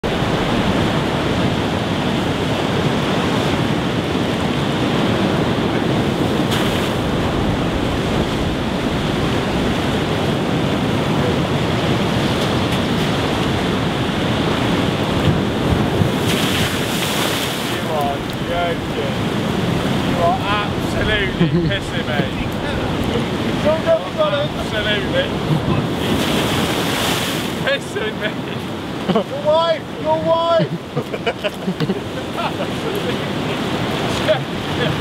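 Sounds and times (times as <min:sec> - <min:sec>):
surf washing over rocks: 0:00.0 - 0:35.0.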